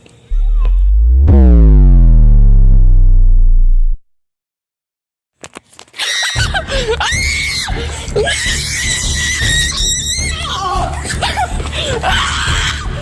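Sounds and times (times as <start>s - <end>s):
buzzy sound effect sliding down: 0.3s - 4.1s.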